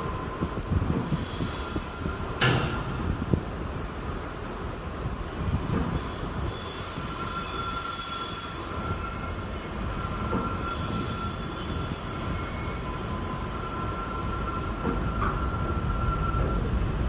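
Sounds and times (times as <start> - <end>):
train rumbling over bridge: 0.0 - 17.0
high-pitched wheel squeal: 6.0 - 16.7.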